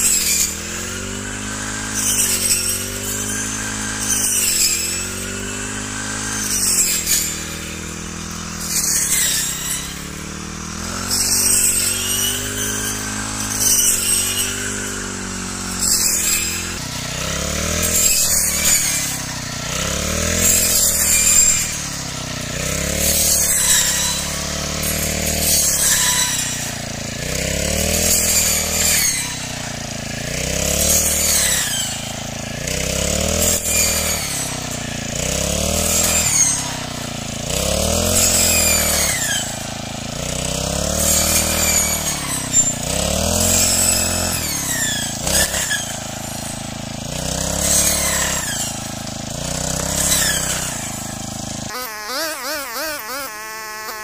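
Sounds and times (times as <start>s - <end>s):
brush cutter engine running: 0.0s - 54.0s.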